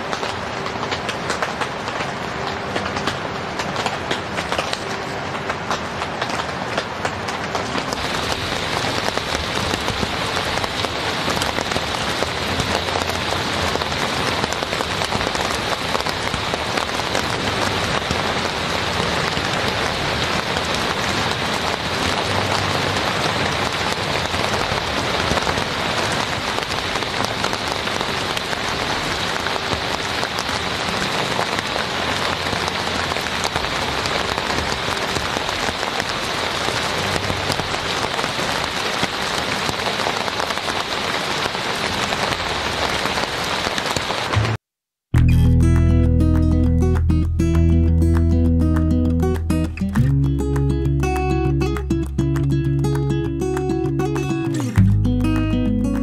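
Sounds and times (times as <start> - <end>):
rain pattering on a tent: 0.0 - 44.6, 45.2 - 56.0.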